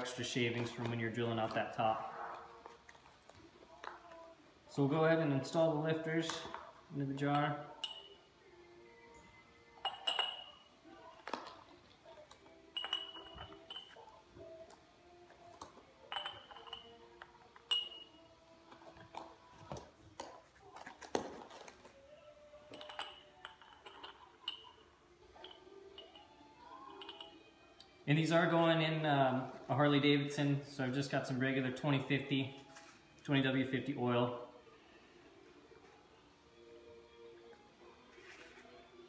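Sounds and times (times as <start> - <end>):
metal parts clinking against glass jar: 9.8 - 10.7, 12.8 - 14.1, 16.1 - 18.2, 22.7 - 27.5.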